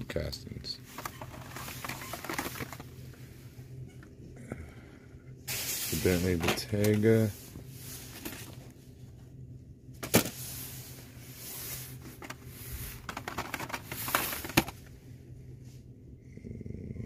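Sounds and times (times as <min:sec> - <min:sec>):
low hum: 0:00.0 - 0:13.2, 0:13.8 - 0:17.0
plastic packaging crinkling: 0:00.9 - 0:02.8.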